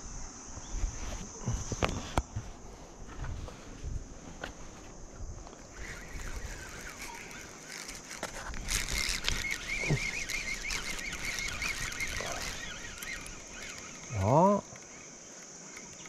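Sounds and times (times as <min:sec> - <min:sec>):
fishing reel whirring: 0:05.4 - 0:16.0.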